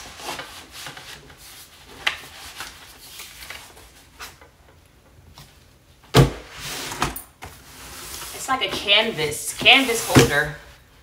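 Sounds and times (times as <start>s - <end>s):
loud cardboard thump: 6.1s - 6.5s.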